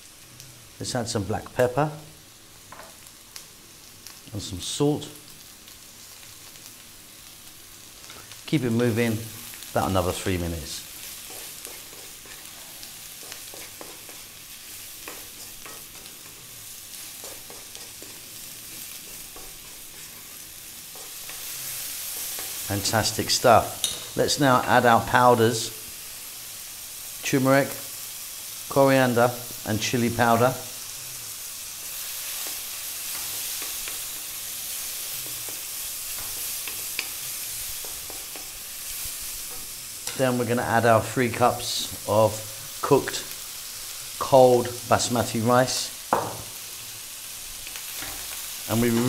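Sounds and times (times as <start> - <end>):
vegetables sizzling in hot oil: 0.0 - 49.0
wooden utensil scraping a pan: 11.0 - 14.3
sharp tap on pan: 46.1 - 46.5.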